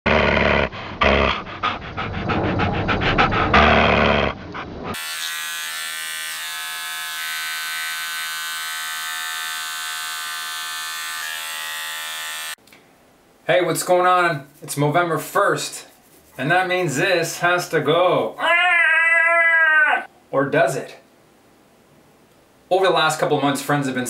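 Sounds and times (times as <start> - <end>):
electric beard trimmer buzzing: 4.9 - 12.6.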